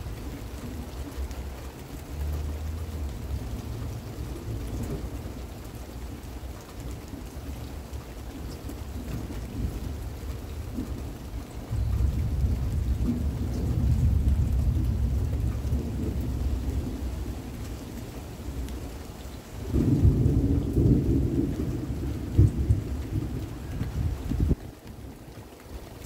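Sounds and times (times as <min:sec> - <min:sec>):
rain hissing: 0:00.0 - 0:26.0
thunder rumbling: 0:08.9 - 0:17.8, 0:19.6 - 0:25.1.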